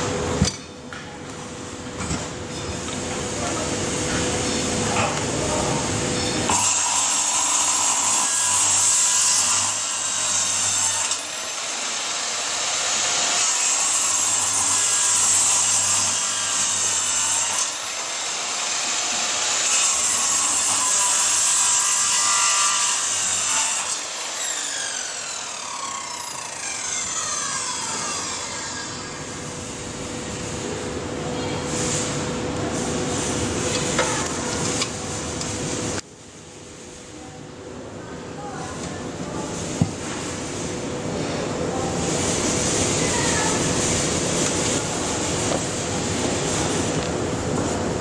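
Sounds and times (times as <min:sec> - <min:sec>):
circular saw cutting wood: 0:06.4 - 0:29.4
saw motor winding down: 0:06.5 - 0:29.2.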